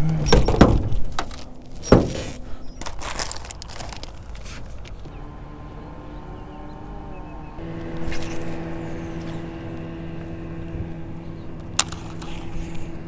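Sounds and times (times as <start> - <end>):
electric motor humming: 5.0 - 13.0.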